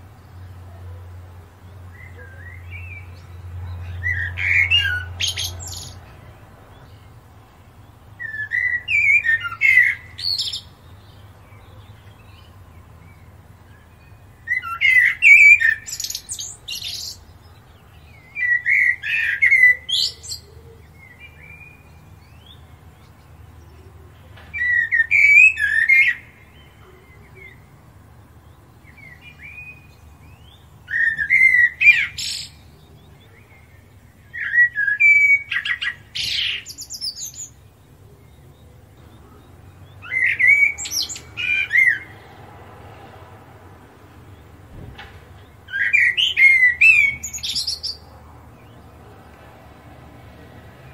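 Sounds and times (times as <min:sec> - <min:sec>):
robin singing warbled phrases: 0:00.0 - 0:42.4, 0:45.4 - 0:49.3.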